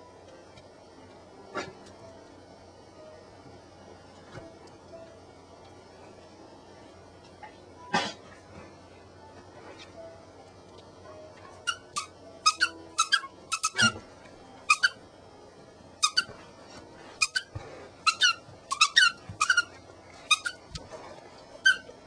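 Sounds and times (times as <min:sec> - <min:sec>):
dog toy squeaking: 0:11.6 - 0:14.0, 0:14.7 - 0:15.0, 0:16.0 - 0:16.3, 0:17.2 - 0:19.7, 0:20.3 - 0:20.6, 0:21.6 - 0:21.9.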